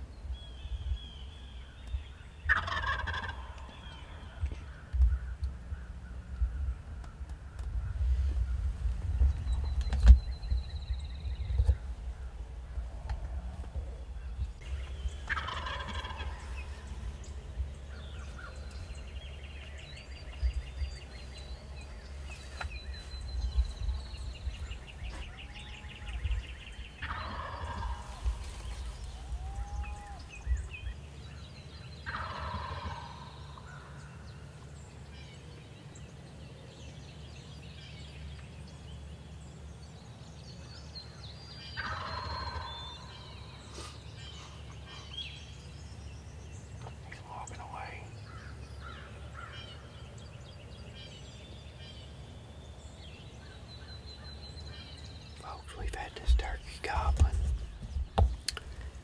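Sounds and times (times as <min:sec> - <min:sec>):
turkey gobbling: 0:02.5 - 0:03.7, 0:15.2 - 0:16.4, 0:27.0 - 0:28.1, 0:32.1 - 0:33.2, 0:41.8 - 0:42.7.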